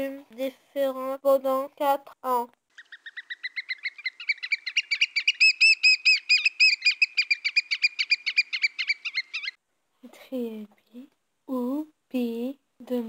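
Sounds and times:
bird shrill piping calls: 2.7 - 9.6.

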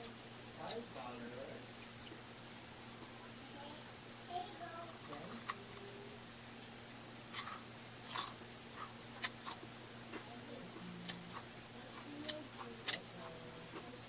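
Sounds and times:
crunchy chewing: 5.0 - 14.0
wet mouth clicks: 6.8 - 9.6, 11.1 - 13.1.

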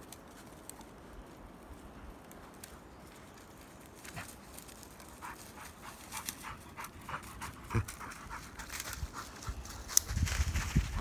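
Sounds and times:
dog panting: 5.2 - 10.0.

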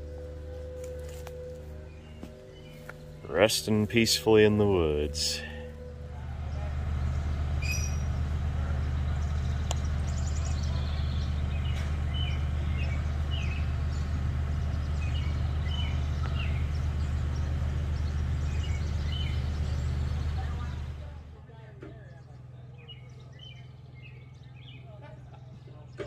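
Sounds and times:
steady low hum: 0.0 - 26.0
bird chirps: 7.0 - 8.2, 8.8 - 20.8.

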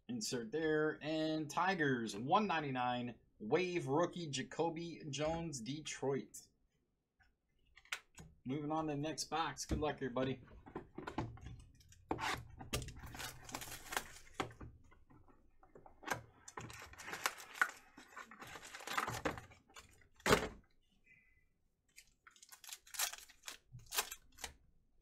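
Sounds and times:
foil wrappers crinkling: 13.0 - 14.4, 22.0 - 24.5.

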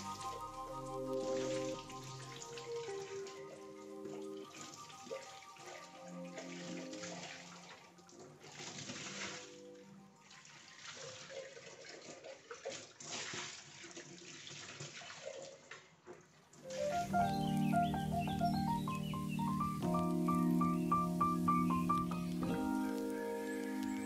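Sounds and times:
tap water splashing into sink: 10.4 - 16.9.

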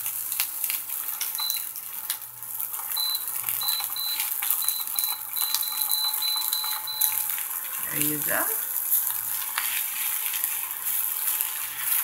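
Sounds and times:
rice sizzling in a frying pan: 0.0 - 12.0
spatula stirring and scraping: 5.0 - 12.0.

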